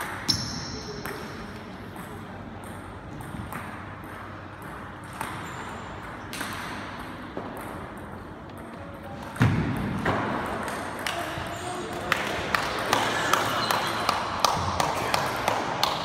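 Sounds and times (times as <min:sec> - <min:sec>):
table tennis ball bouncing: 0:00.0 - 0:11.4.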